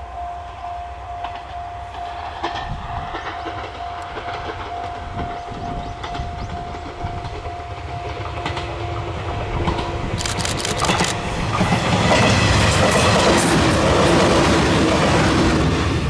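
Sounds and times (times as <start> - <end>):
level crossing alarm dinging: 0.0 - 9.2.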